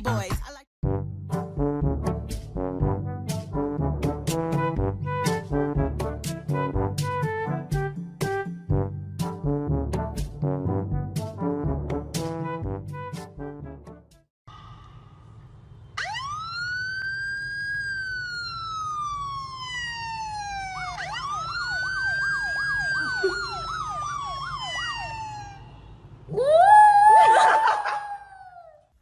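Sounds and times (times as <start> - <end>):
police siren wailing: 16.0 - 28.8.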